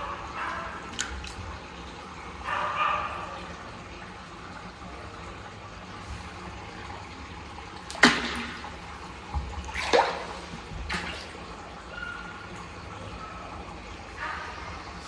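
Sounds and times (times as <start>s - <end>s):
fish splashing at water surface: 0.7s - 1.6s, 7.8s - 11.8s.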